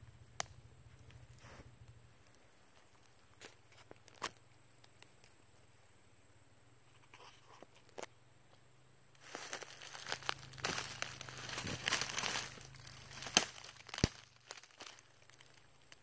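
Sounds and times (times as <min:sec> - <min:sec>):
dry leaves and twigs crackling: 0:00.1 - 0:05.7, 0:09.1 - 0:16.0.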